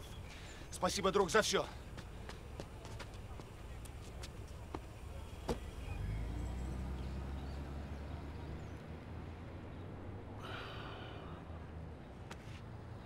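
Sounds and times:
car engine driving off: 4.9s - 9.1s
man gasping breath: 10.4s - 11.4s.

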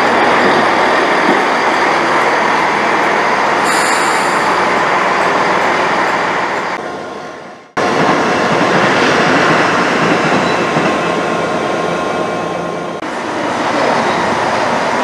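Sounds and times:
diesel train passing at speed: 0.0s - 15.0s.

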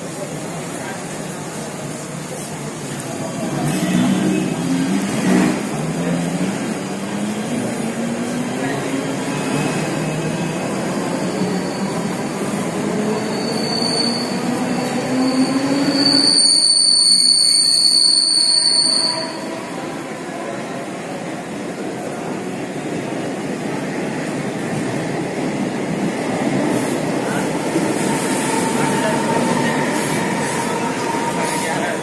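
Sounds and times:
high steady squeal: 13.0s - 19.6s.

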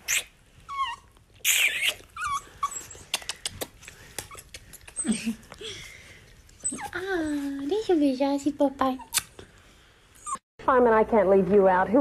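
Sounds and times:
small dog whining and crying: 0.0s - 3.1s, 6.6s - 7.7s, 10.2s - 10.4s.

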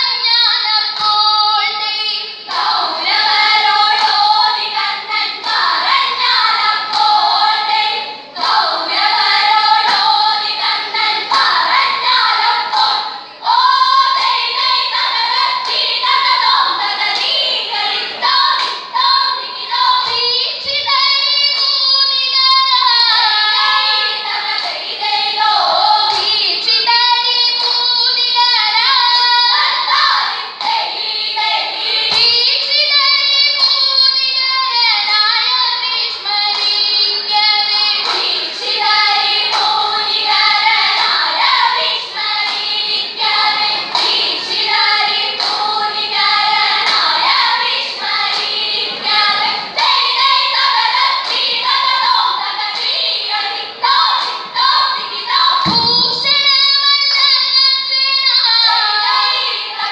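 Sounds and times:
girls singing in unison: 0.0s - 59.9s
hand claps: 0.9s - 1.3s, 2.5s - 7.5s, 8.4s - 13.1s, 14.1s - 17.6s, 18.4s - 19.1s, 20.0s - 20.3s, 24.5s - 24.9s, 26.1s - 27.8s, 30.6s - 31.0s, 31.9s - 32.4s, 36.5s - 51.8s, 52.7s - 53.0s, 54.1s - 54.5s, 55.6s - 56.5s.

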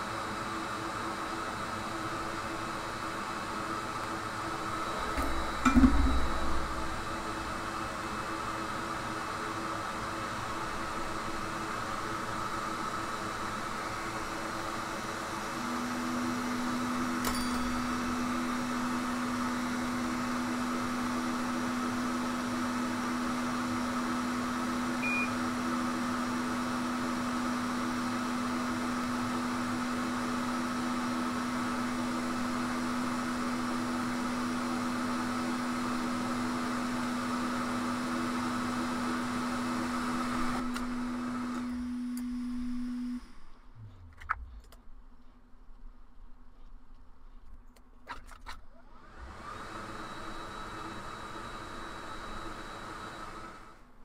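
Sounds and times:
hot air station blowing: 0.0s - 22.5s.

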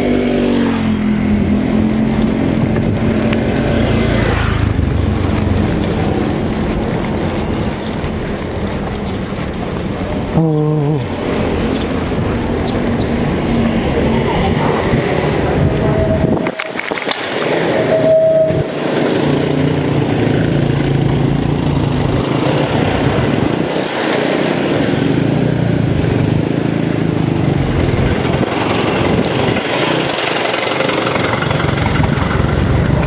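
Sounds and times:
bike tyres on concrete: 0.0s - 33.0s
motorbike engine humming: 0.0s - 33.0s
air rushing: 0.6s - 9.4s.

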